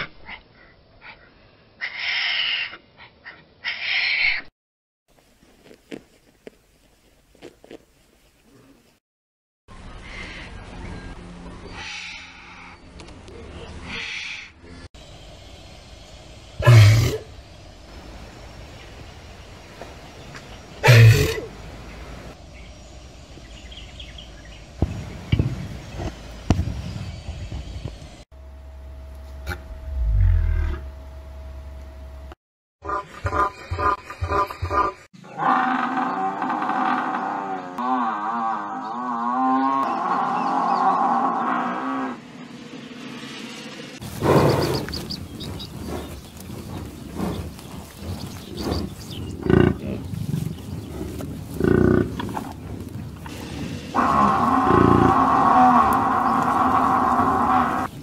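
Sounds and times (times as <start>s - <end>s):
outdoor background noise: 0.0s - 4.5s, 5.1s - 9.0s, 9.7s - 58.0s
buffalo grunting: 44.1s - 57.9s.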